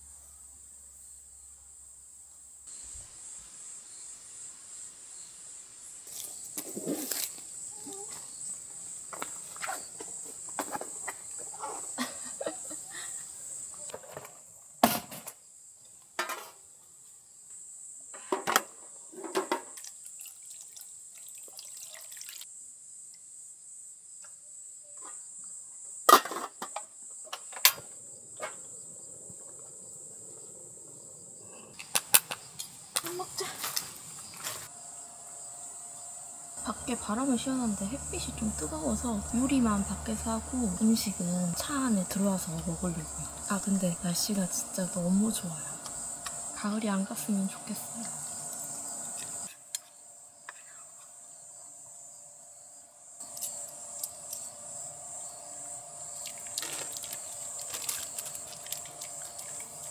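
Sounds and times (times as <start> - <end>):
insects trilling: 0.0 - 59.9
camp cooking gear clattering: 26.1 - 28.8.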